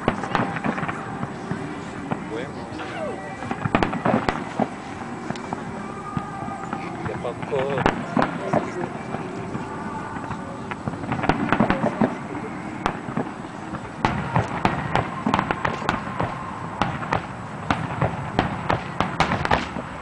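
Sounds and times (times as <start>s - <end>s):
fireworks bursting and crackling: 0.0s - 20.0s.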